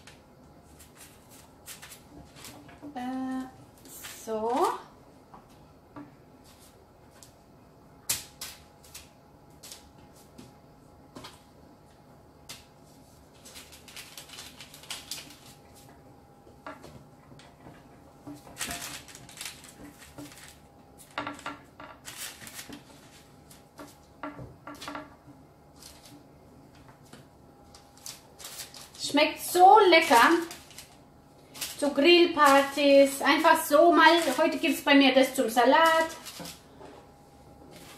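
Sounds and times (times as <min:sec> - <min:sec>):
parchment paper rustling: 0:00.0 - 0:04.8, 0:12.5 - 0:16.0, 0:16.8 - 0:24.1, 0:25.7 - 0:37.9.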